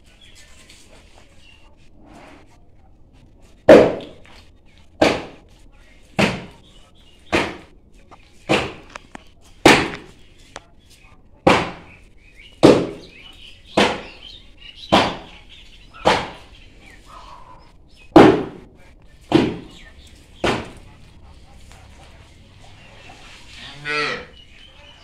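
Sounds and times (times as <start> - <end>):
sharp heavy knocks: 18.1 - 18.7, 19.3 - 19.8.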